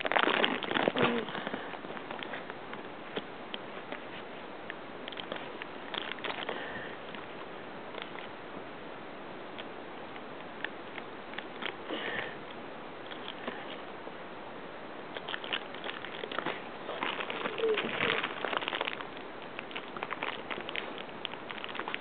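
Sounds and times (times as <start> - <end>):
plastic bag crinkling: 0.0 - 3.2, 5.0 - 8.3, 15.1 - 22.0.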